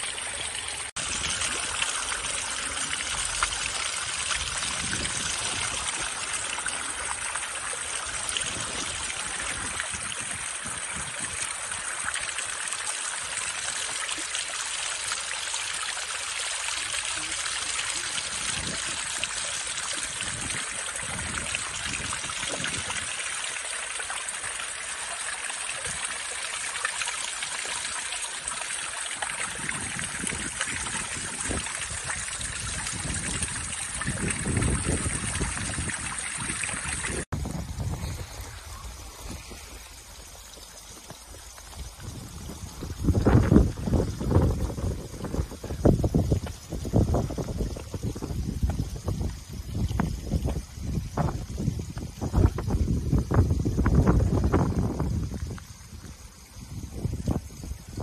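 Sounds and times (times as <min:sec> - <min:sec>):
waterfall splashing: 0:00.0 - 0:45.9.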